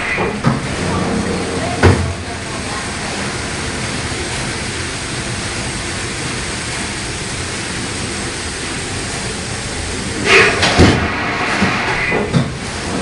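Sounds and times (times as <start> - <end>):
steam engine hissing: 0.0 - 13.0.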